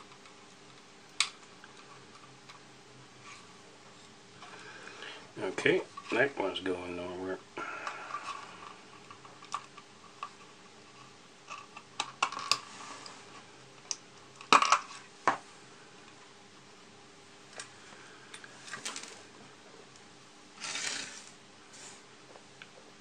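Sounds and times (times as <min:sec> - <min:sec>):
scraping rustle: 0:20.6 - 0:22.0.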